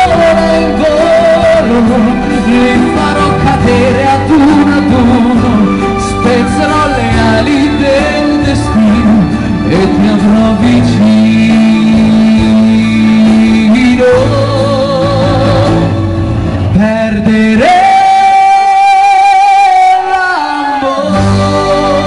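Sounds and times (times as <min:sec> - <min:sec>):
instrumental accompaniment: 0:00.0 - 0:22.0
man singing into a microphone: 0:00.0 - 0:22.0.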